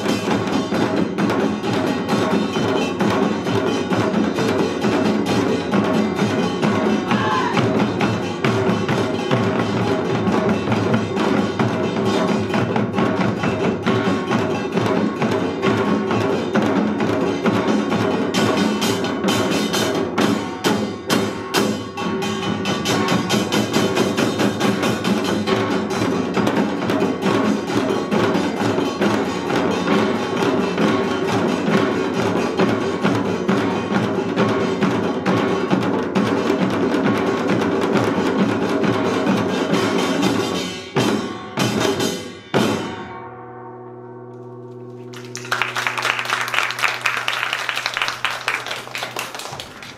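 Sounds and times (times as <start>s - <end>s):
drums and gongs playing fast rhythm: 0.0s - 43.2s, 44.9s - 49.9s
applause: 44.9s - 49.9s.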